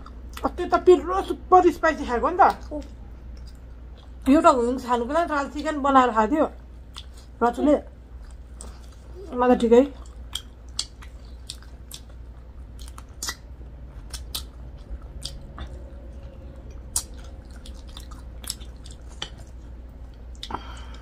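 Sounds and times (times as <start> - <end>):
people chewing with mouth clicks: 2.4 - 4.3, 6.9 - 7.4, 8.2 - 21.0.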